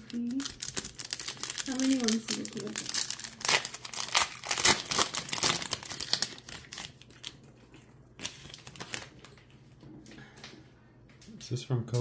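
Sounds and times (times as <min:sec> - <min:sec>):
foil pack crinkling: 0:00.0 - 0:09.5.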